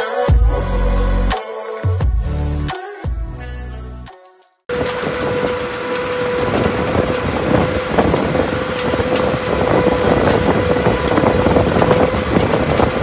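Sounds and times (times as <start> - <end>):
plough scraping rumble: 4.7 - 13.0
tractor engine and machinery: 4.7 - 13.0.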